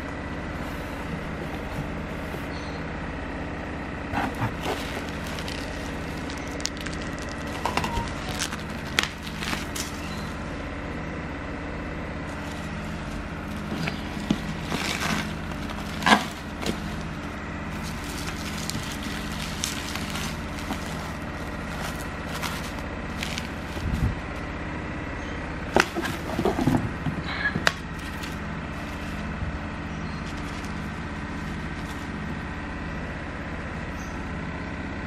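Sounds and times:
bubble wrap and cardboard crinkling: 4.2s - 10.4s, 12.3s - 24.3s, 25.7s - 29.4s, 30.1s - 32.5s.

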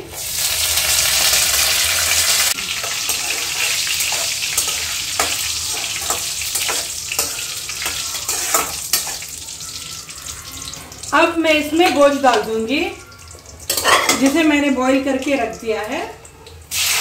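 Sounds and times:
spices sizzling in hot oil: 0.0s - 16.1s, 16.7s - 17.0s
steel spoon scraping a pan: 0.9s - 10.1s, 13.7s - 14.4s.

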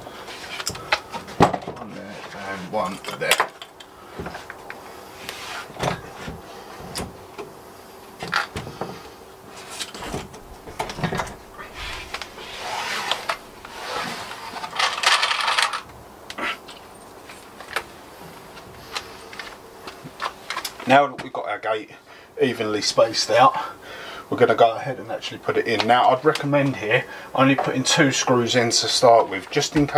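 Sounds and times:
wooden gate scraping: 8.2s - 17.8s.

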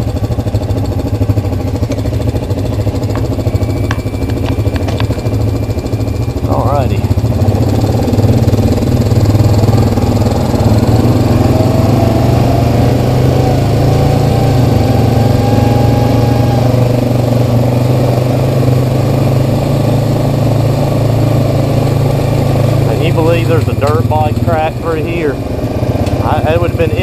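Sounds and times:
atv engine running: 0.0s - 27.0s
faint whine: 1.5s - 19.2s.

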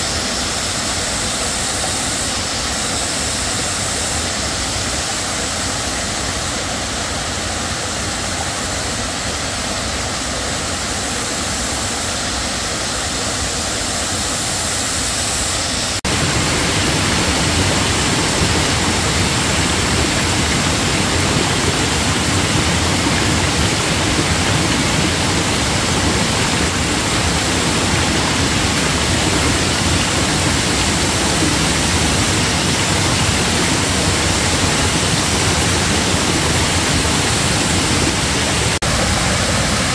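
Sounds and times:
stream running over stones: 15.9s - 39.9s.

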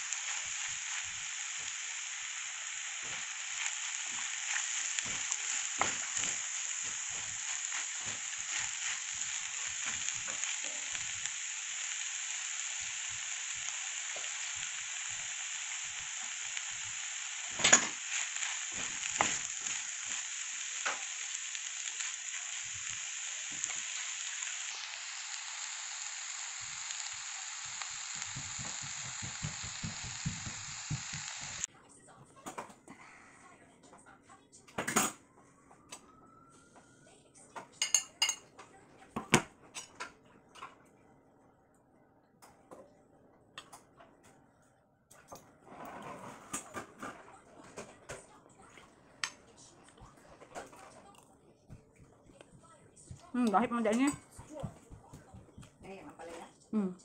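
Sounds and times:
food sizzling in a pan: 0.0s - 31.7s, 37.8s - 38.4s, 53.0s - 56.9s.

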